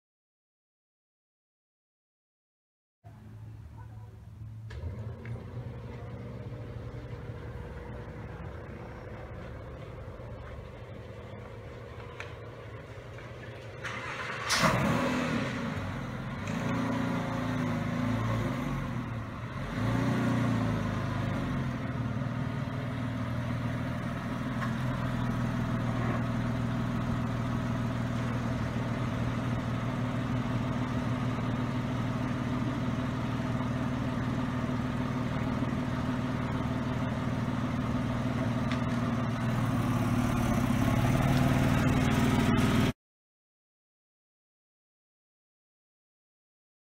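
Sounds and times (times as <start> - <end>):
car engine starting and revving: 4.6 - 10.2, 13.8 - 31.2, 34.7 - 43.0
car driving past: 13.5 - 22.8.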